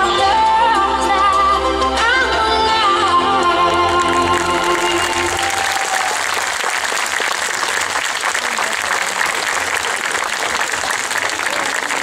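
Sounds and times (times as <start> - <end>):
dance music: 0.0 - 5.9
audience applause: 4.0 - 12.0.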